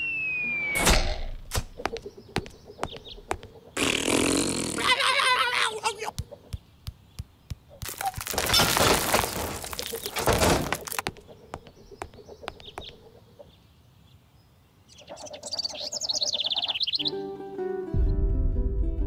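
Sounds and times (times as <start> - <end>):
high warbling chirp: 0.0 - 1.4
debris knocks settling: 7.8 - 11.2
rubble crashing and tumbling: 7.8 - 11.2.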